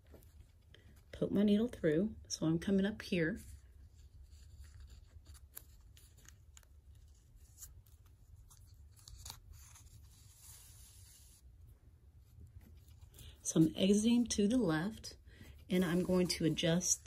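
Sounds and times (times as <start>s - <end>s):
low steady hum: 0.0s - 17.0s
paper and thread rustling: 3.3s - 17.0s.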